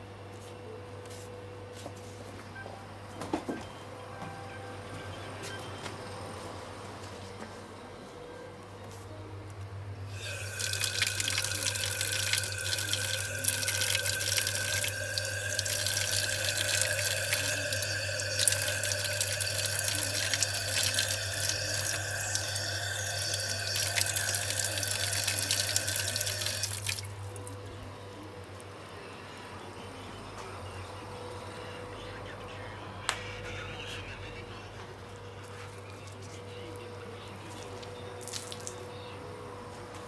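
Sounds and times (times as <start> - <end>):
water splashing into basin: 10.1 - 27.6.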